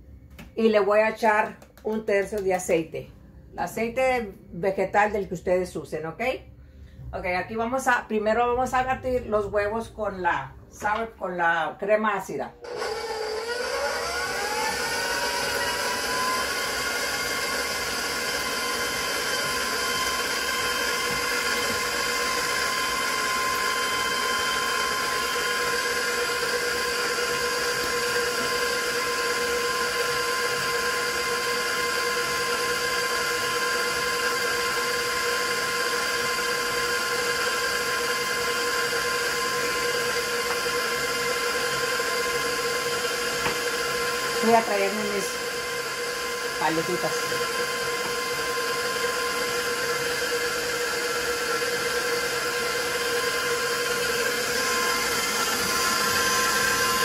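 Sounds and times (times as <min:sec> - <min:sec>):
electric stand mixer motor whine: 0:12.6 - 0:57.0.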